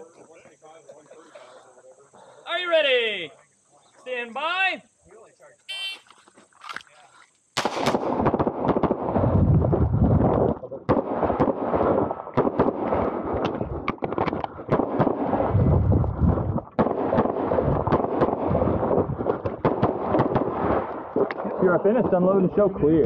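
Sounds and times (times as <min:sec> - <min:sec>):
pistol firing rapid shots: 0:07.6 - 0:09.2, 0:10.9 - 0:13.6, 0:14.7 - 0:15.6, 0:16.8 - 0:20.9.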